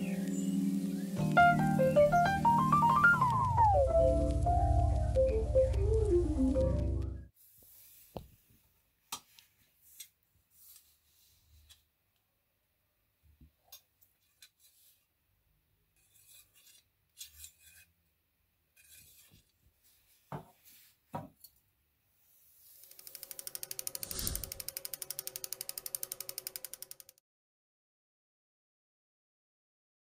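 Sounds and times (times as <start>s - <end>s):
scissor blades scraping: 16.0s - 17.9s, 18.8s - 19.4s, 22.8s - 27.1s
rapid ratchet clicking: 22.8s - 27.2s.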